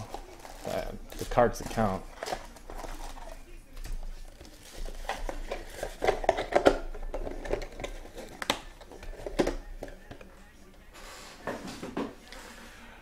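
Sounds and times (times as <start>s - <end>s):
packaging rustling: 0.0s - 3.4s.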